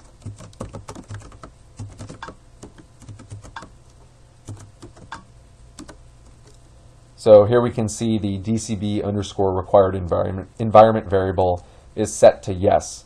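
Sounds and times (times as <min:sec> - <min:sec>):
typing on a computer keyboard: 0:00.0 - 0:03.7, 0:04.5 - 0:06.6.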